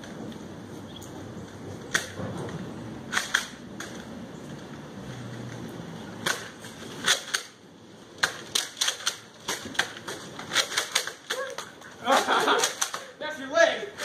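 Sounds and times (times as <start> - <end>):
toy blasters clicking: 3.1 - 3.6, 8.2 - 11.7, 12.4 - 13.1.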